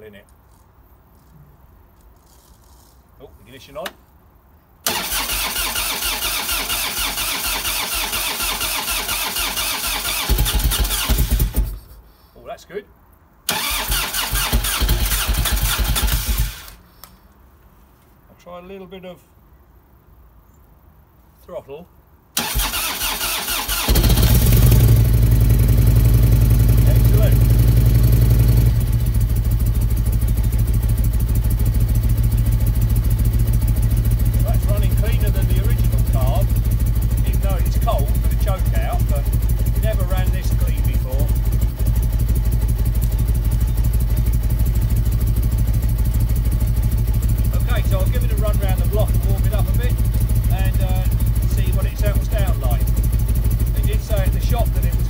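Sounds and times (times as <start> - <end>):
electric starter cranking engine: 4.8 - 11.8, 13.5 - 16.8, 22.4 - 25.4
motorcycle engine firing: 4.9 - 11.8, 13.5 - 16.8, 22.4 - 55.0.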